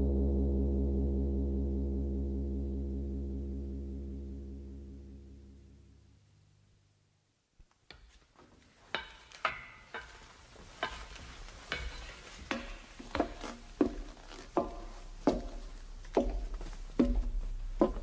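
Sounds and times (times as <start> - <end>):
low hum: 0.0 - 7.1, 13.2 - 18.0.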